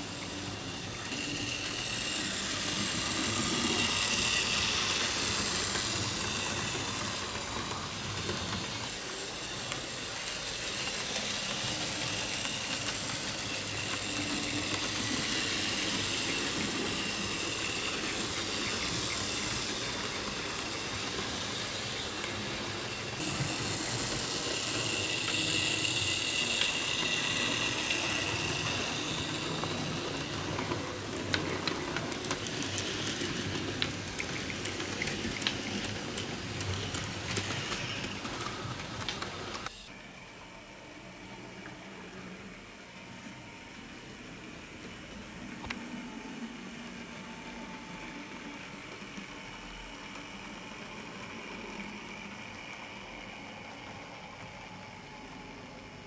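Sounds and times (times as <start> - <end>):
steam hiss: 0.0 - 39.9
wheel noise on track: 0.0 - 39.9.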